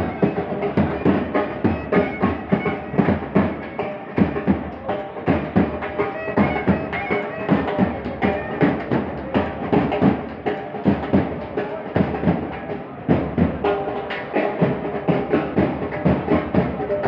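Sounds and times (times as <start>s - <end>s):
held instrument notes: 0.0s - 11.9s
drums beating steady rhythm: 0.0s - 17.0s.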